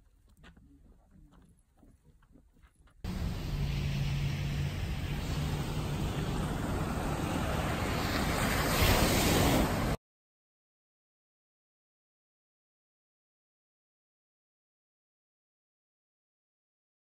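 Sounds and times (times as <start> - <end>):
ocean surf breaking: 3.1 - 10.0.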